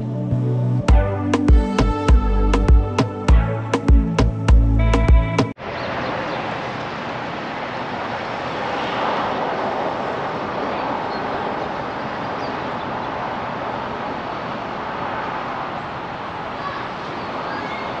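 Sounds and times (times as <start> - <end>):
vehicle road noise: 4.8 - 18.0.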